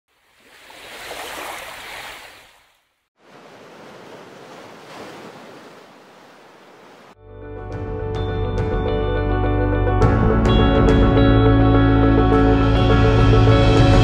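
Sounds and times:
sea surf on beach: 0:00.1 - 0:07.2.

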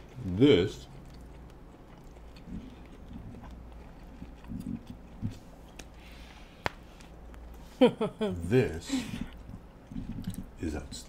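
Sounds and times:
people chewing food: 0:00.0 - 0:11.0.

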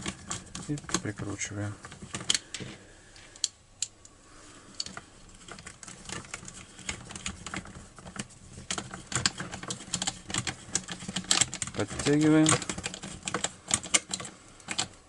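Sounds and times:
nut driver clicking on nuts: 0:08.7 - 0:15.0.

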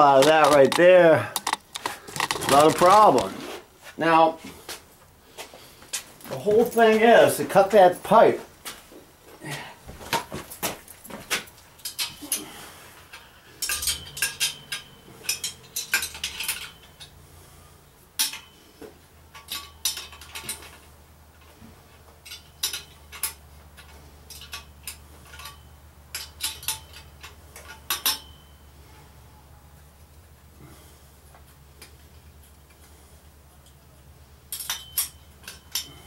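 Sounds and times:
metal tools clinking: 0:00.0 - 0:03.3, 0:06.2 - 0:07.8, 0:10.5 - 0:17.6, 0:18.2 - 0:21.6, 0:22.2 - 0:29.1, 0:34.4 - 0:36.0
low steady hum: 0:00.0 - 0:36.0.

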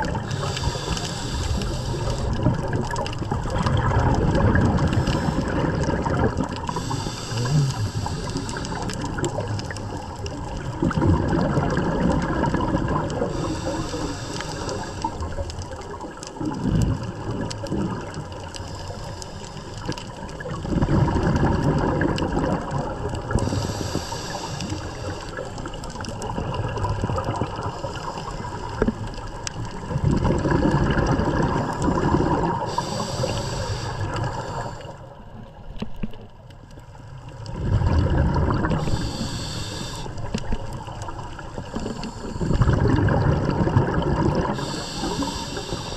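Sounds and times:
bubbles rushing and gurgling: 0:00.0 - 0:45.9
steady underwater hiss: 0:00.0 - 0:45.9
regulator inhale hiss: 0:00.1 - 0:02.7, 0:04.8 - 0:05.9, 0:06.6 - 0:09.6, 0:13.2 - 0:15.7, 0:18.5 - 0:20.2, 0:23.3 - 0:26.0, 0:27.5 - 0:29.0, 0:31.6 - 0:35.2, 0:38.7 - 0:40.7, 0:41.4 - 0:43.0, 0:44.4 - 0:45.9.

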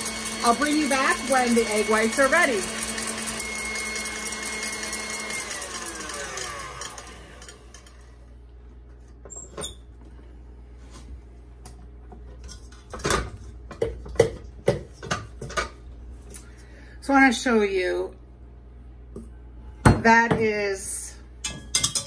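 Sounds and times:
stand mixer motor whine: 0:00.0 - 0:08.2.

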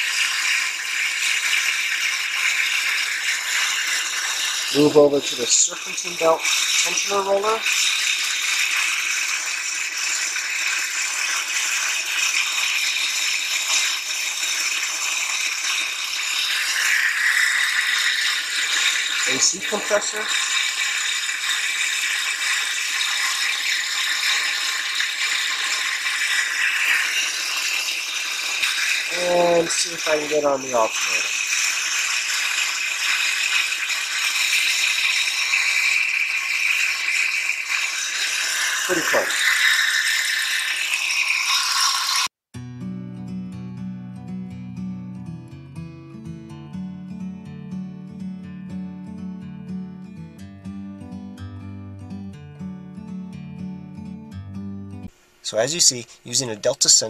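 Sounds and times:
high-pitched grinding hiss: 0:00.0 - 0:42.3, 0:55.1 - 0:57.0
gritty high-pitched alternator rattle: 0:00.0 - 0:42.4.

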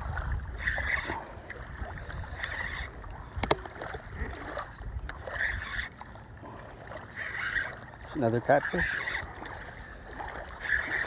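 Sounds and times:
wind on microphone: 0:00.0 - 0:05.9
water lapping at shore: 0:00.0 - 0:11.0.

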